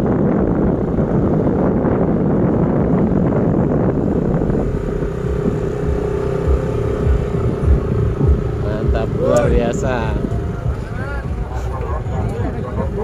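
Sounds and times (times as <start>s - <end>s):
jeep engines rumbling: 0.0s - 13.0s
steady hum: 0.0s - 13.0s.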